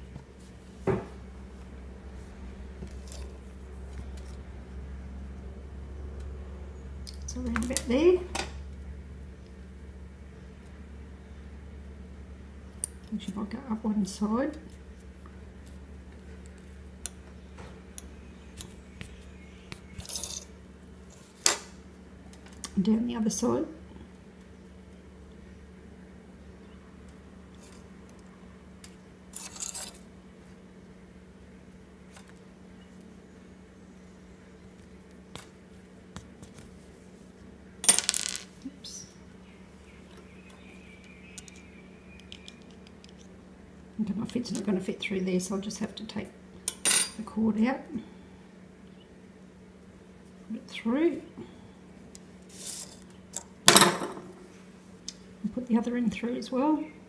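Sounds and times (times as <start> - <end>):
low hum: 0.0 - 35.8.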